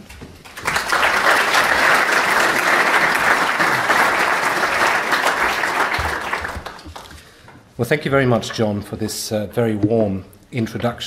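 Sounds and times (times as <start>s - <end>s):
audience applauding: 0.4s - 7.3s.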